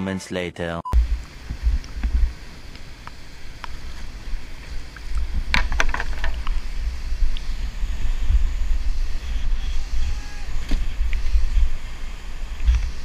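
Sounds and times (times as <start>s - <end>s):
wind rumble on microphone: 1.0s - 13.0s
whitewater rapid rushing: 3.3s - 13.0s.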